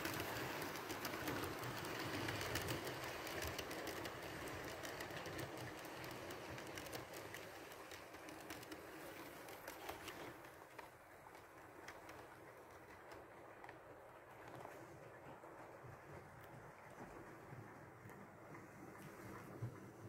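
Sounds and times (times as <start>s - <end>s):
model train rolling: 0.0s - 20.0s.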